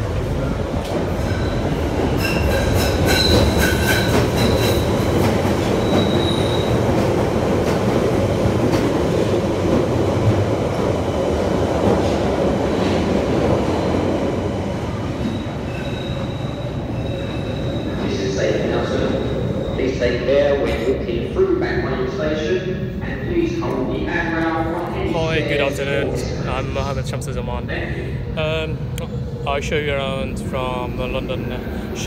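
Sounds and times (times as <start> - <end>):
train wheels running on rails: 0.0 - 19.8
high-pitched wheel squeal: 15.2 - 18.0.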